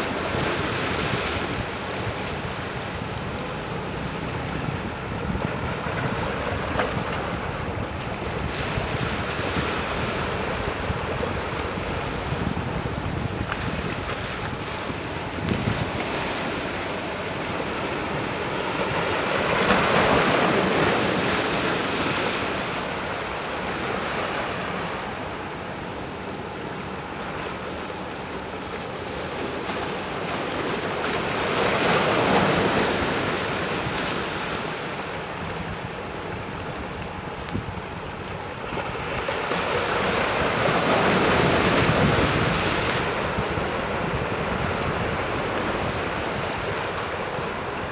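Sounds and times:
wind noise on microphone: 0:00.0 - 0:25.4, 0:30.2 - 0:47.9
waves washing in: 0:00.0 - 0:47.9.

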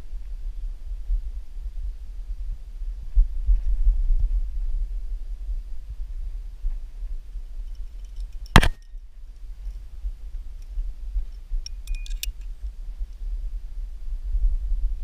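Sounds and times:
steady low rumble: 0:00.0 - 0:15.0
carabiners clinking: 0:11.7 - 0:12.5.

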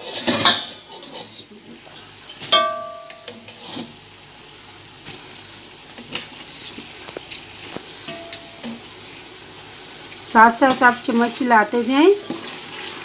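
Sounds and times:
metal utensil clanging pot: 0:00.0 - 0:01.4, 0:02.4 - 0:03.9, 0:08.0 - 0:08.9
syrup bubbling and sizzling: 0:00.0 - 0:13.0.

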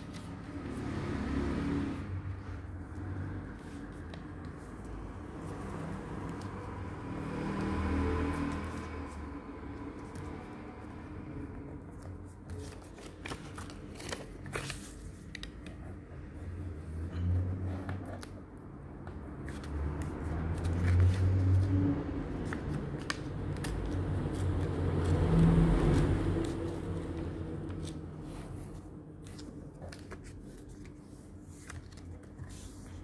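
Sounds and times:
paper being folded and creased: 0:07.5 - 0:18.4, 0:19.2 - 0:33.0.

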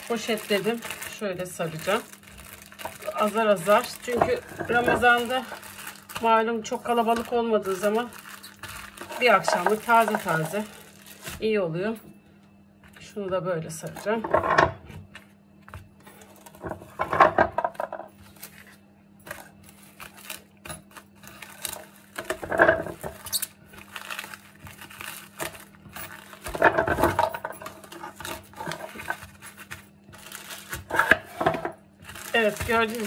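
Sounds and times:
cling film crinkling: 0:00.0 - 0:11.4, 0:19.3 - 0:26.6, 0:27.8 - 0:30.9, 0:32.0 - 0:33.0.

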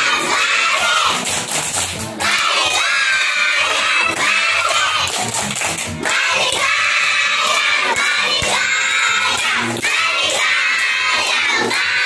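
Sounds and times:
children singing: 0:00.0 - 0:01.2, 0:02.2 - 0:05.2, 0:06.0 - 0:12.0
children clapping: 0:00.0 - 0:12.0.

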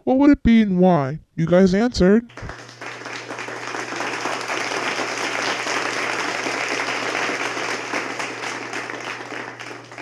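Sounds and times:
crowd applause: 0:02.3 - 0:10.0.

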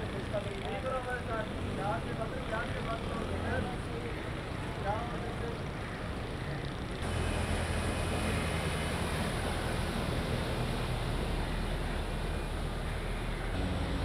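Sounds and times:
bus engine running: 0:07.0 - 0:14.0.

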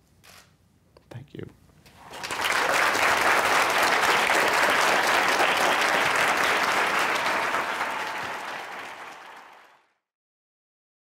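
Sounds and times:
audience applauding: 0:01.9 - 0:10.0.

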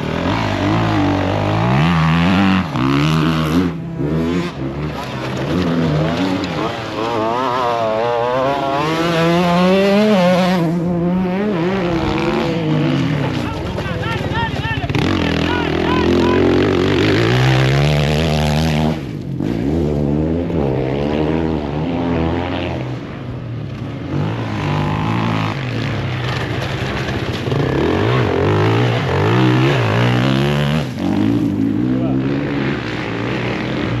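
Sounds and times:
dirt bike engines revving: 0:00.0 - 0:34.0.

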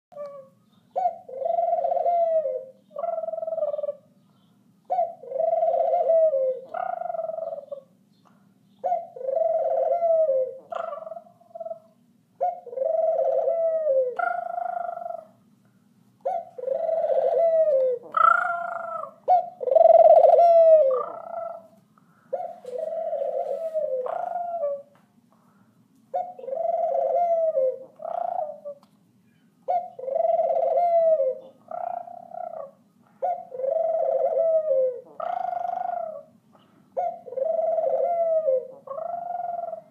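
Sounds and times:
dove cooing: 0:00.1 - 0:04.2, 0:04.9 - 0:08.0, 0:08.8 - 0:15.4, 0:16.2 - 0:25.0, 0:26.1 - 0:28.8, 0:29.6 - 0:39.9.

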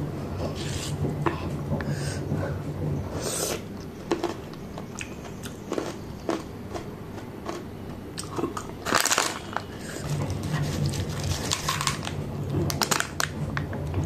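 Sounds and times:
low steady hum: 0:00.0 - 0:14.0
snack pieces dropping into mortar: 0:08.2 - 0:09.7, 0:11.0 - 0:13.4
plastic snack packet crinkling: 0:08.8 - 0:13.4.

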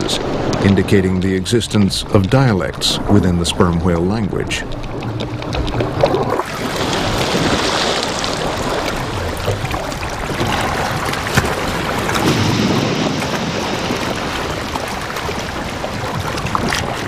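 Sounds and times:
waves washing and splashing: 0:00.0 - 0:17.0
faint clicks: 0:03.5 - 0:06.5.

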